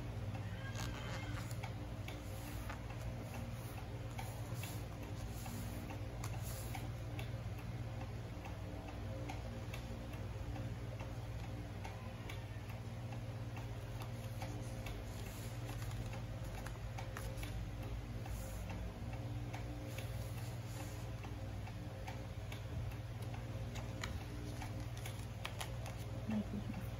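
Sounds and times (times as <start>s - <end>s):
steady low hum: 0.0s - 26.9s.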